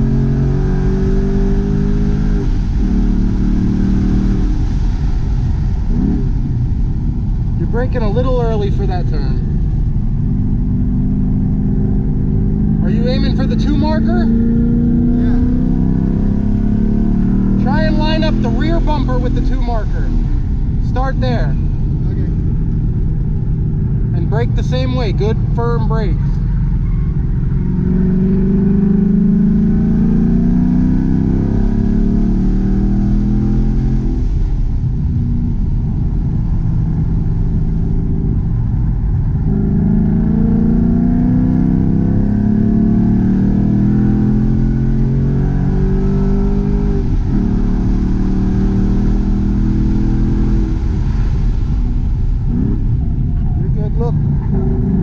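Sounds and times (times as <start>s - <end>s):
car engine revving hard: 0.0s - 6.7s, 10.5s - 21.5s, 27.5s - 34.5s, 39.3s - 55.0s.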